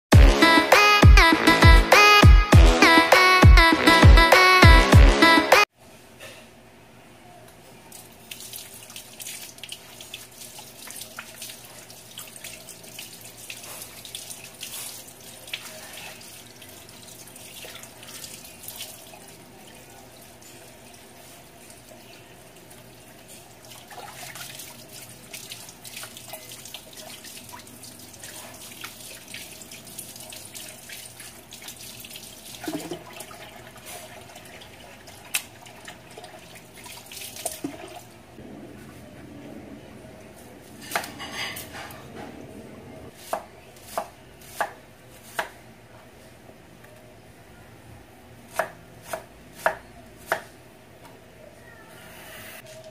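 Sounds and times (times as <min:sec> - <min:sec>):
tap water splashing in a sink: 0:23.6 - 0:38.2.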